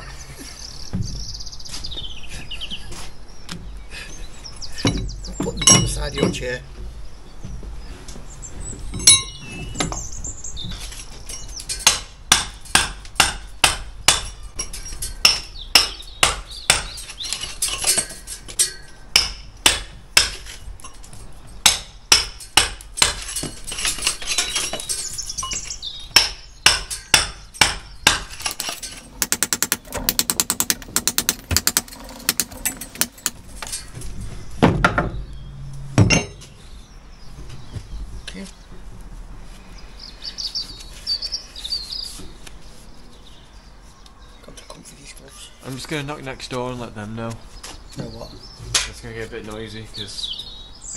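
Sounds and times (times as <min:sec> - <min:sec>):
hammer striking chisel: 0:11.8 - 0:14.4, 0:15.2 - 0:17.0, 0:21.6 - 0:23.6, 0:26.2 - 0:33.4.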